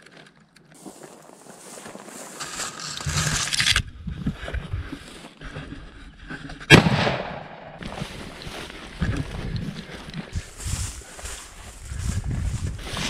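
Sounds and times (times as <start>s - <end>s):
dry grass rustling on microphone: 0.0s - 6.6s, 7.8s - 13.0s
rifle shot: 6.7s - 7.8s.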